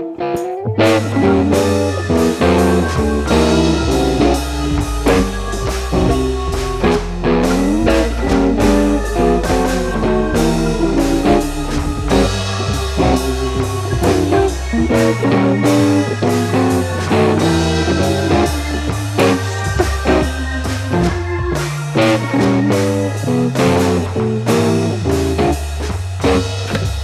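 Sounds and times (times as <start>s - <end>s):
background music with guitar and drums: 0.0s - 27.0s.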